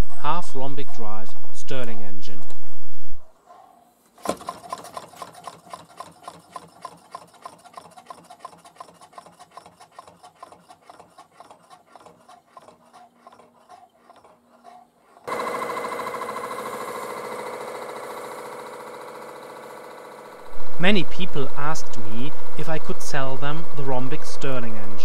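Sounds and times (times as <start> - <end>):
engine mechanical ticks and rubbing: 4.0 - 15.4.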